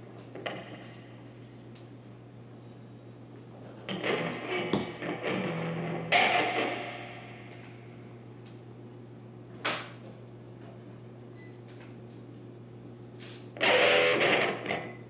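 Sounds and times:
harsh noise with buzzing tone: 0.0s - 1.4s, 3.8s - 8.3s, 13.5s - 15.0s
amplifier hum: 0.0s - 15.0s.

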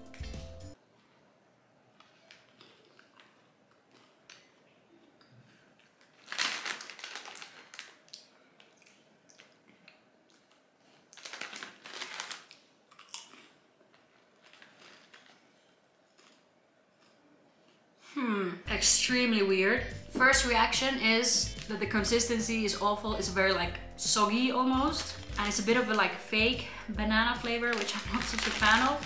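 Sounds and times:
faint chewing of chips: 1.9s - 18.1s, 27.5s - 29.0s
foil snack bag crinkling: 6.0s - 8.2s, 10.5s - 13.3s, 14.1s - 15.7s, 24.0s - 29.0s.

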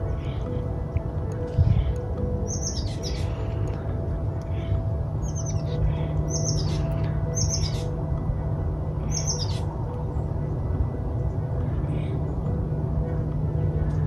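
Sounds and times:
songbird chirping: 0.0s - 10.4s
low rumble: 0.0s - 14.0s.

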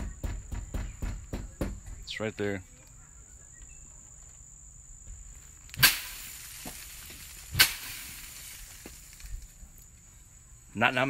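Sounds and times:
crickets chirping: 0.0s - 11.0s
sharp whacks of a tool: 5.8s - 6.3s, 7.5s - 8.1s.

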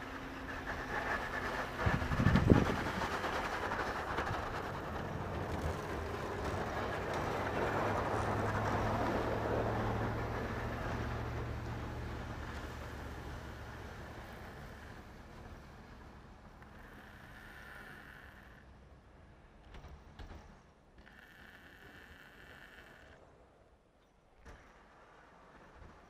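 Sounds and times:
snow hissing off plow blade: 0.0s - 15.7s
truck engine working under load: 0.0s - 19.0s.

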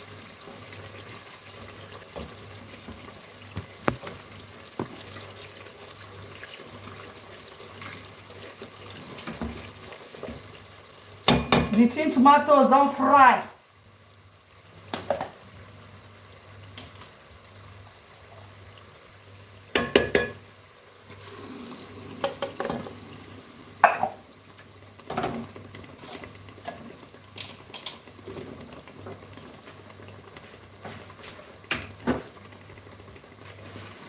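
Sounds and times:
stew sizzling in pot: 0.0s - 34.0s
wooden spoon knocking pot: 19.7s - 20.4s.

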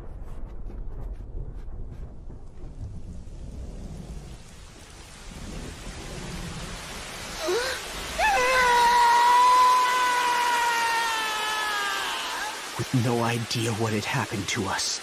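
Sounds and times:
heavy rain: 1.6s - 15.0s
young man wailing in grief: 7.4s - 12.6s.

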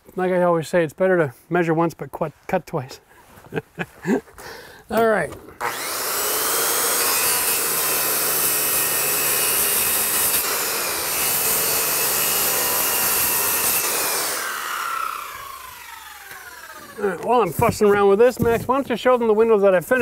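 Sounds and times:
circular saw cutting: 5.6s - 18.3s.

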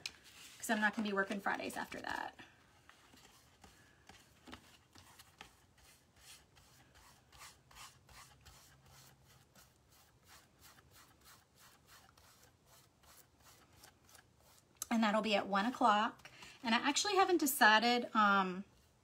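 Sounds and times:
paintbrush strokes on wood: 5.0s - 14.7s.

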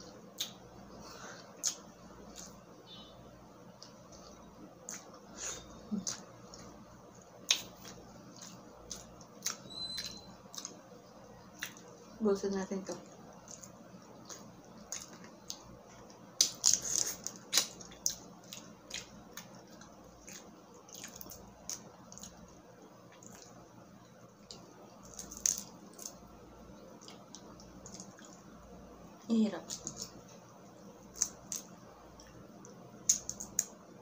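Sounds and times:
shrimp shell cracking wetly: 25.0s - 26.2s, 33.0s - 33.8s.

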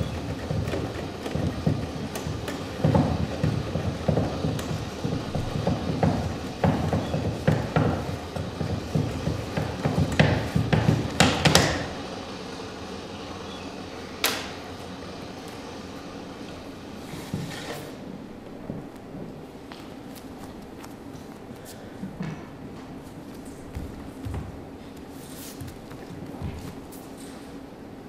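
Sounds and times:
low rumbling clatter of knocks: 0.0s - 12.0s.

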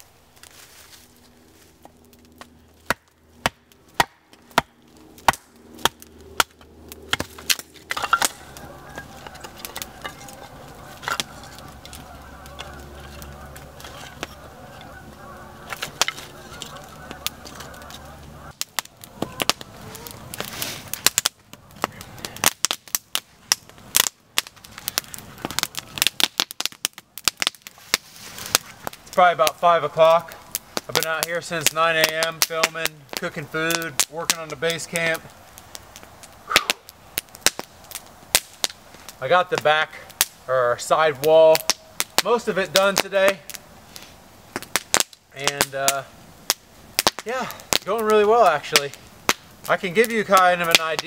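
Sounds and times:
steady low hum: 0.0s - 22.4s
campfire crackling: 0.0s - 51.0s
sticks snapping: 1.8s - 29.1s.

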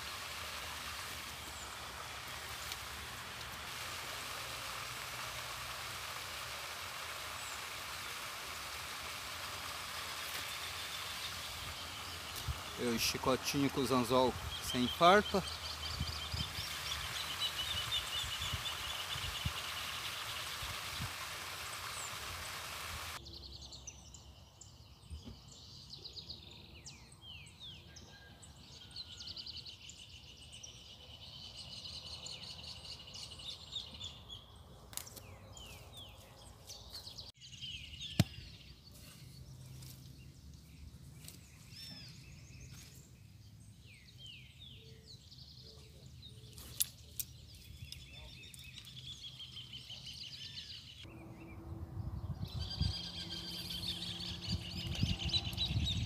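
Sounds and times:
hiss: 0.0s - 23.2s
small birds chirping: 0.0s - 56.0s.

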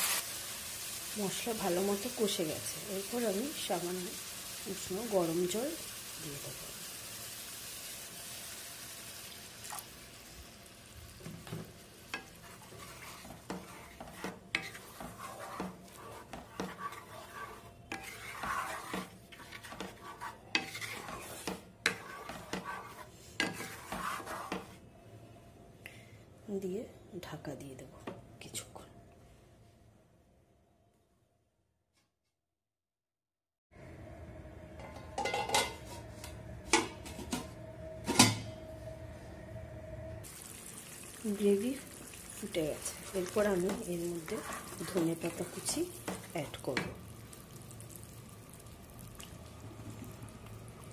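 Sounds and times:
wooden spatula scraping metal pan: 11.4s - 24.8s, 42.7s - 47.0s
low steady hum: 33.8s - 50.9s
metal pot lid clattering: 34.8s - 35.8s.

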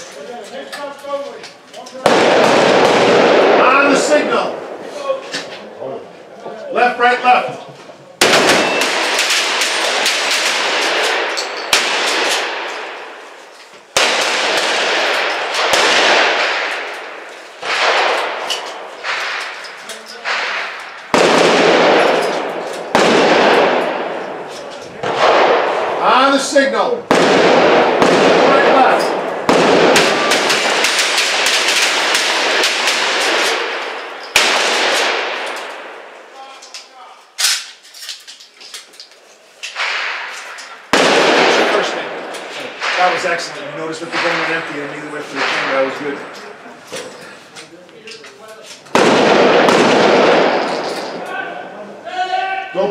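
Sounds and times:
echoing shotgun shots: 2.0s - 4.9s, 8.2s - 36.5s, 39.7s - 46.6s, 48.9s - 51.3s.

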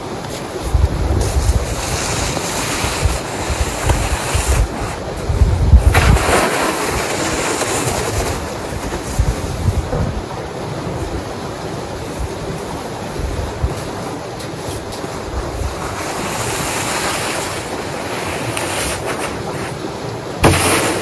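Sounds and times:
wind buffeting microphone: 0.0s - 21.0s
snow shovel scraping through snow: 0.3s - 5.0s, 5.8s - 9.4s, 14.7s - 21.0s.

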